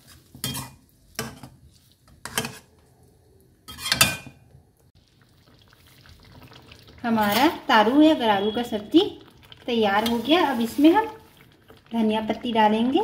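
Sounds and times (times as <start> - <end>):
metal spoon stirring in pan: 0.0 - 2.8, 3.7 - 4.3, 9.8 - 11.7.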